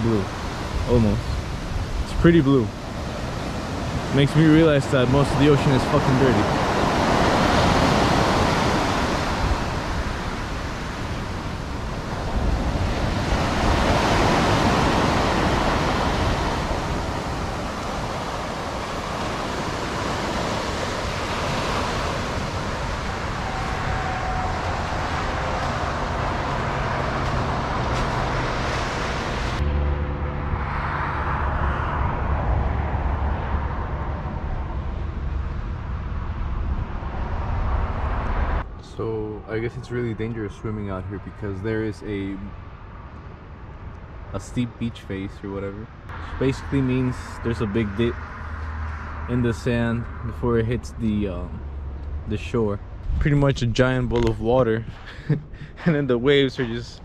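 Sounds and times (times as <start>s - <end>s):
surf breaking on beach: 0.0s - 29.6s
distant road traffic: 0.0s - 57.0s
wind rumble: 0.0s - 57.0s.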